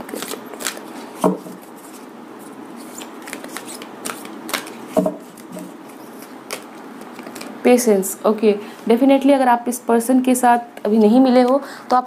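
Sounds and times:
cards being shuffled: 0.0 - 7.6.

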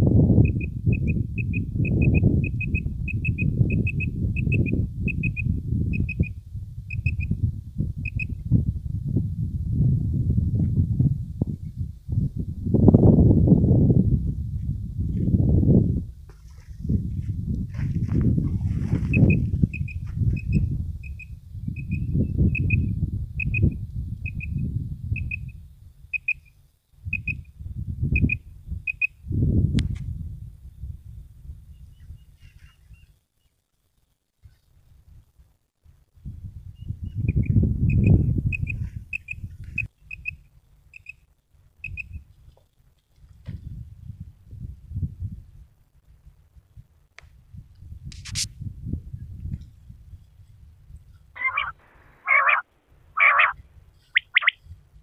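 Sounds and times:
wind rumble on microphone: 0.0 - 33.2, 34.4 - 55.0
quail calling: 51.4 - 54.6.

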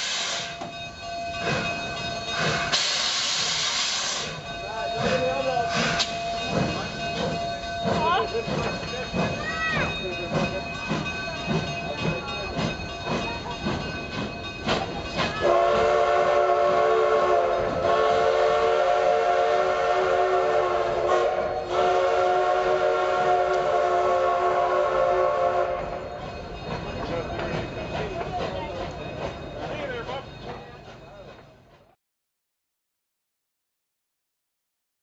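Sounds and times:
steam locomotive whistle: 0.0 - 0.6, 2.4 - 4.4, 15.4 - 26.1
coach wheels clicking and knocking: 4.3 - 15.9, 25.7 - 32.0.

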